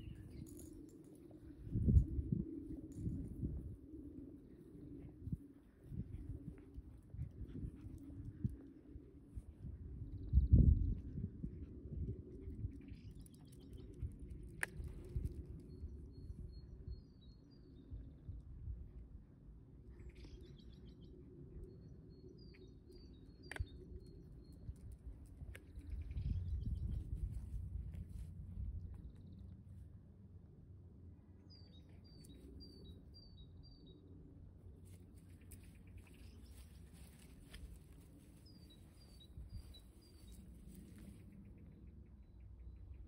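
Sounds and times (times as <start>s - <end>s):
songbirds chirping: 0.0s - 11.4s, 12.1s - 43.0s
small bird chirping: 35.2s - 43.0s.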